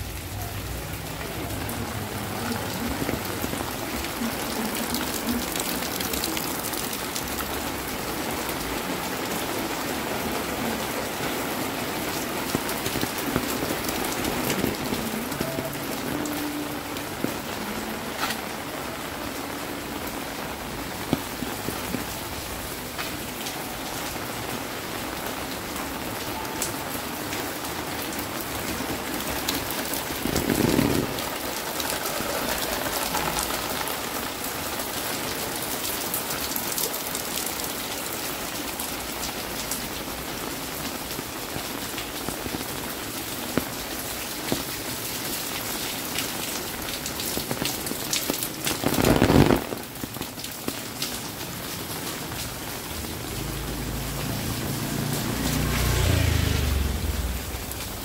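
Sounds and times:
rain falling on paving: 0.0s - 58.0s
sharp drips and ticks: 0.0s - 58.0s.

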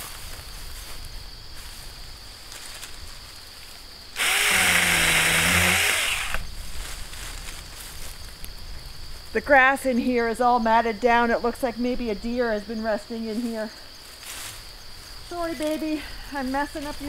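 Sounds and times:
insects trilling: 0.0s - 17.0s
electric chainsaw cutting: 4.2s - 6.5s.

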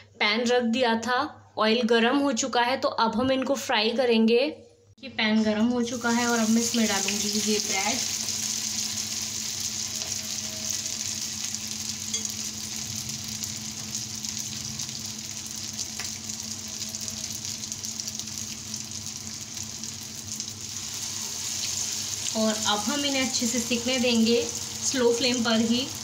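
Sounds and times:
food sizzling in hot oil: 5.8s - 26.0s.

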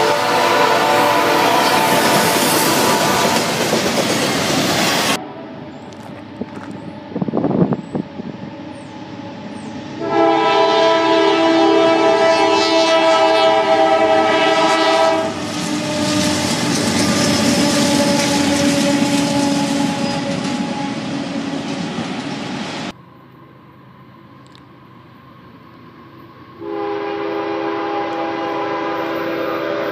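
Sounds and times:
locomotive air horn: 0.0s - 3.6s, 10.0s - 21.3s, 26.6s - 29.9s
train rumbling and clattering: 0.0s - 23.0s.

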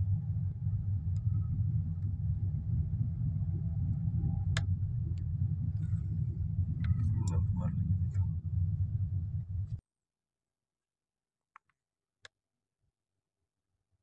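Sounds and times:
car engine rumble from inside cabin: 0.0s - 9.8s
faint whine: 0.0s - 9.8s
click: 4.5s - 5.3s.

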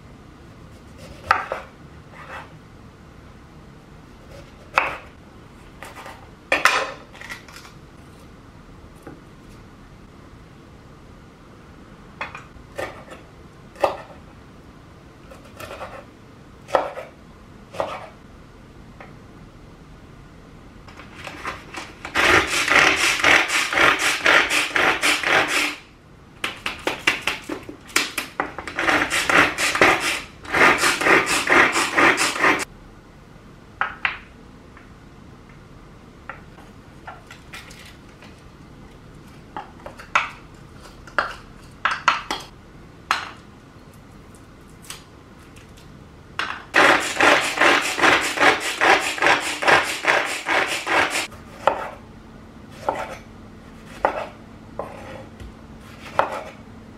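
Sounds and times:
food chopper blades whirring: 22.1s - 25.8s, 46.8s - 51.3s.

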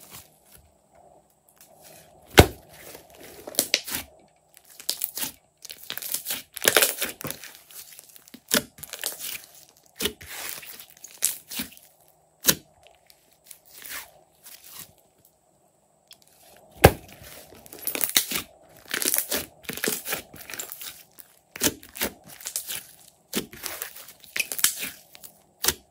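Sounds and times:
slime squelching and popping: 21.6s - 25.8s.

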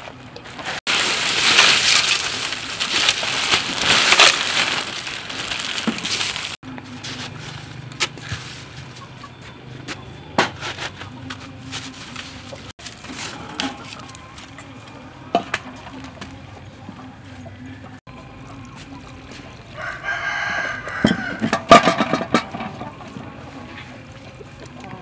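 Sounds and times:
crushed ice crunching: 0.4s - 8.8s.

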